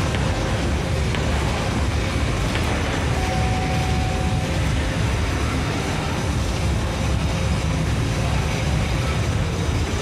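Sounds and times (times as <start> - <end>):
steady low rumble: 0.0 - 10.0
faint high tone: 3.1 - 4.6.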